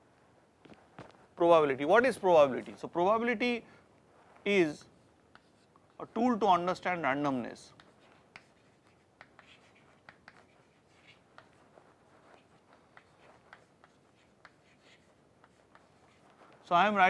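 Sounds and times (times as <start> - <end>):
chalk tapping and scratching: 4.5 - 17.0.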